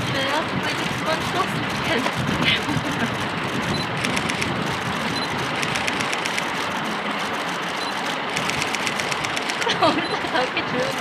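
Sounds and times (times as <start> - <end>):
street traffic noise: 0.0 - 11.0
rapid camera shutter clicks: 0.3 - 10.3.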